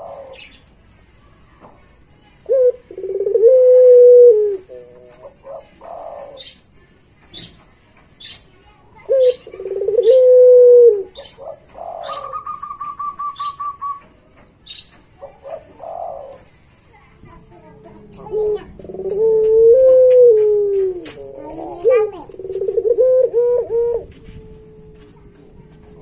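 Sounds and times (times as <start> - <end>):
dove cooing: 0.0 - 0.6, 2.5 - 6.6, 9.0 - 14.0, 15.2 - 16.5, 17.3 - 26.0
bird trill: 11.1 - 14.0
bird chirping: 11.1 - 16.4.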